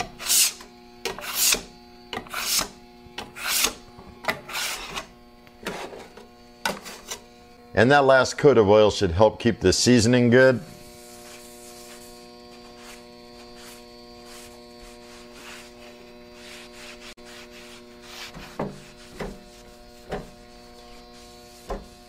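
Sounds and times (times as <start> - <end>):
electrical hum: 0.0 - 22.0
wiping strokes on griddle: 10.8 - 22.0.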